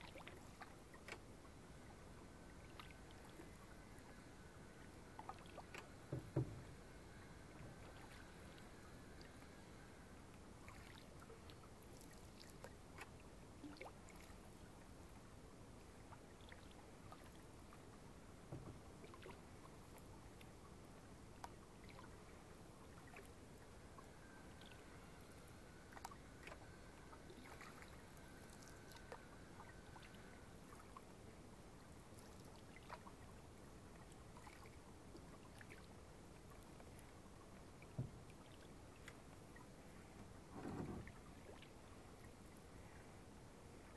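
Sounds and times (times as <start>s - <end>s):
low steady hiss: 0.0s - 43.9s
knock: 6.1s - 6.6s
paddles splashing in water: 25.9s - 31.0s.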